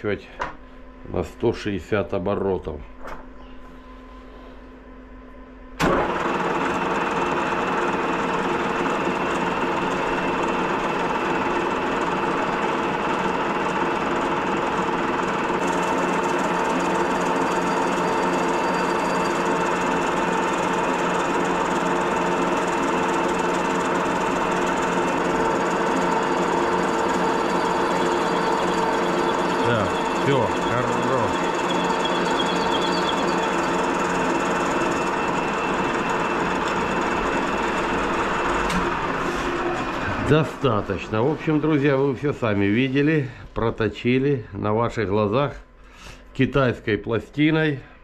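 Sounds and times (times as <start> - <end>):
metal lathe whining: 5.8 - 43.2.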